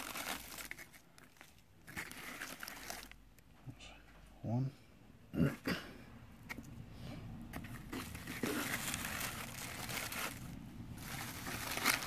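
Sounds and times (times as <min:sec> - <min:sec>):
shredded paper rustling: 0:00.0 - 0:03.2, 0:07.6 - 0:12.0.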